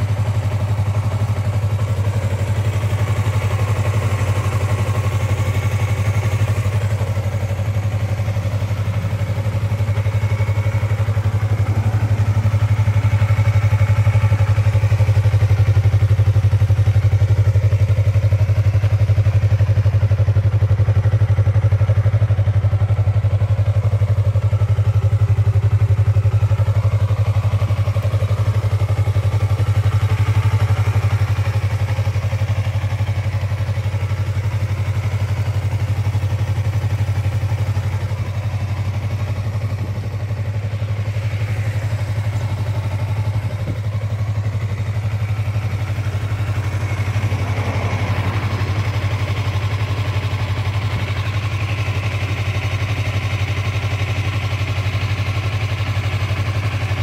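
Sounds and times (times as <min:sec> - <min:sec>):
motorcycle engine idling: 0:00.0 - 0:57.0.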